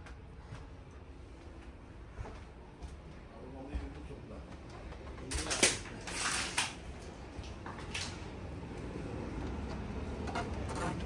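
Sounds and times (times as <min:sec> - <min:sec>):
steady low rumble: 0:06.8 - 0:11.0.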